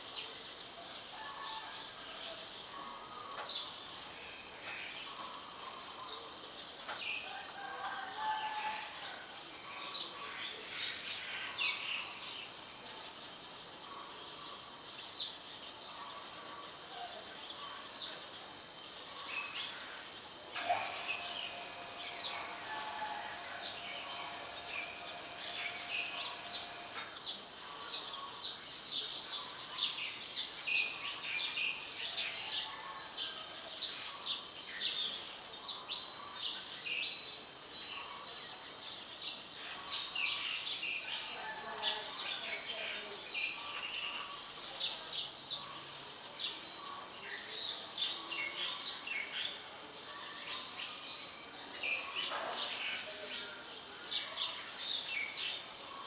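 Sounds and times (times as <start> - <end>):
birds chirping: 9.6 - 56.0
steady low hum: 20.6 - 27.0.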